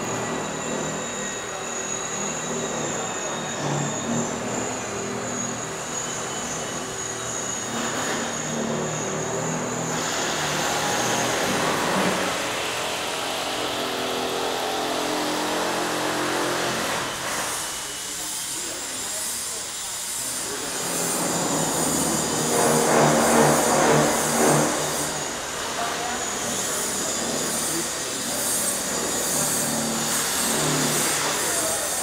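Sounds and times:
high mechanical whine: 0:00.0 - 0:32.0
carousel machinery rumbling: 0:20.2 - 0:32.0.

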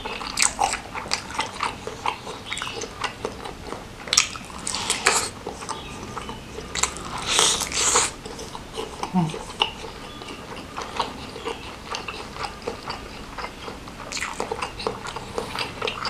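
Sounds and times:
wet chewing and mouth smacking: 0:00.0 - 0:16.0.

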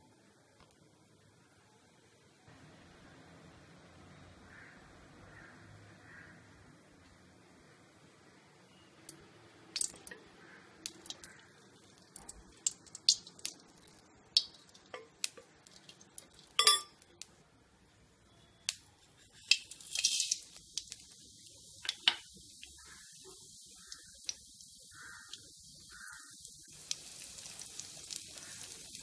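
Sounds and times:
faint sizzle of seeds: 0:07.0 - 0:29.0
kitchen utensils clinking: 0:16.5 - 0:17.0
seeds tipped into hot oil: 0:19.2 - 0:21.1.

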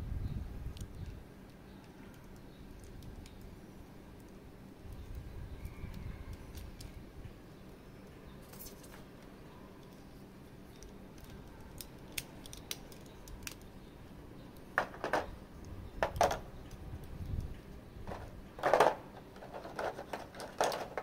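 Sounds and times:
action figure packaging clicks: 0:10.7 - 0:13.8.

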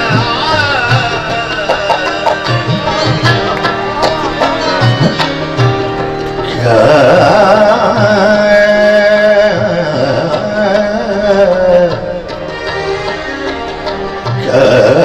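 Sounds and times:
instrumental accompaniment: 0:00.0 - 0:15.0
man singing a long note: 0:06.5 - 0:12.3.

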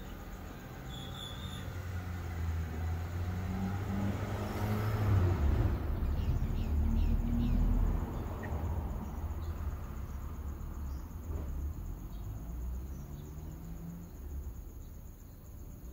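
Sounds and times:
high insect drone: 0:00.0 - 0:15.9.

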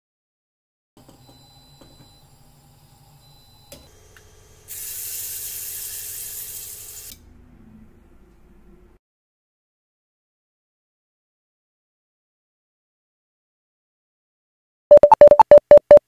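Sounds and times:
hot oil sizzling: 0:04.7 - 0:07.1.

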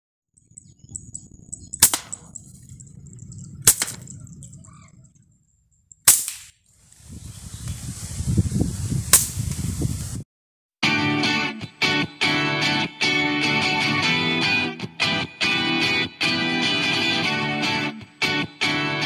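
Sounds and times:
low rumbling noise: 0:00.4 - 0:06.0
air rifle cracks: 0:01.8 - 0:02.3, 0:03.7 - 0:04.1, 0:06.0 - 0:06.5.

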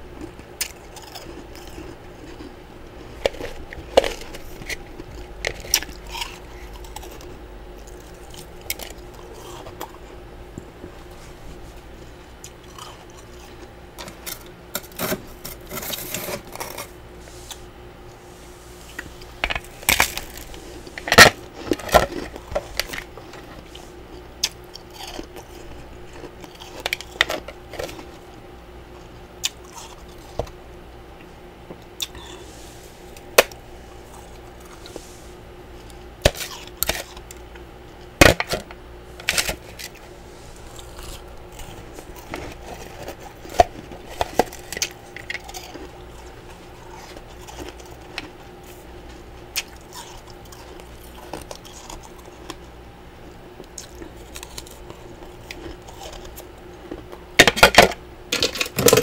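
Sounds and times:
spatula scraping freezer frost: 0:14.1 - 0:17.7.

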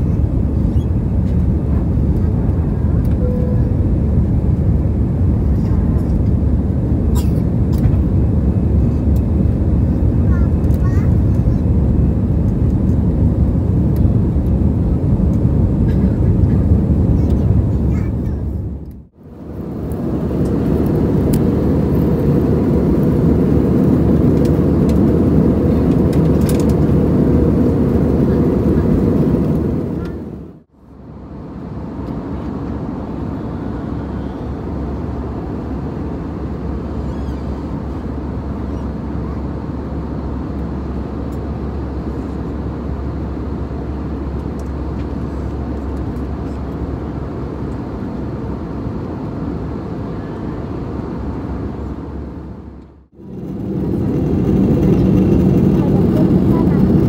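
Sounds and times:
jet cabin engine and airflow noise: 0:00.0 - 0:57.0
low hum: 0:00.0 - 0:57.0.

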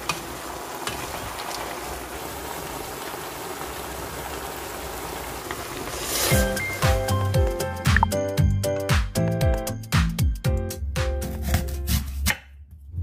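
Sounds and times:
meat sizzling in a pan: 0:00.0 - 0:07.6.

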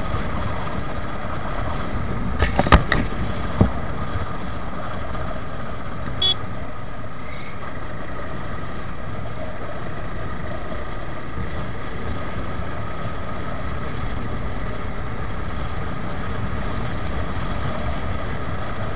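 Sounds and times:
motorcycle engine running: 0:00.0 - 0:18.9
wind and road noise: 0:00.0 - 0:18.9
motorcycle horn toot: 0:06.2 - 0:06.4.

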